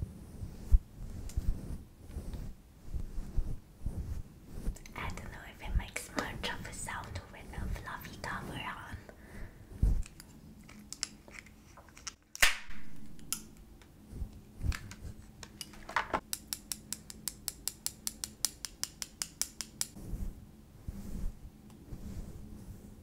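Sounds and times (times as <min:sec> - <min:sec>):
hands clicking and tapping items: 0:06.1 - 0:06.6, 0:14.7 - 0:20.0.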